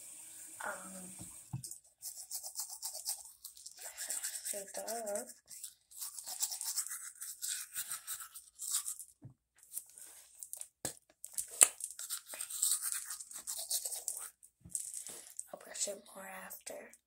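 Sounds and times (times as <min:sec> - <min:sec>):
toothbrush scrubbing teeth: 0:01.6 - 0:10.2, 0:11.4 - 0:14.4.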